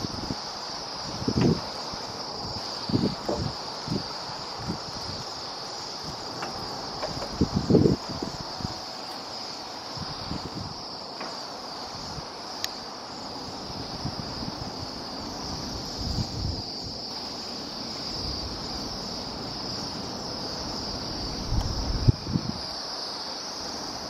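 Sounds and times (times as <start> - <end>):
wind rumble on microphone: 0.0 - 8.8, 9.9 - 10.9, 13.4 - 17.0, 17.6 - 22.8.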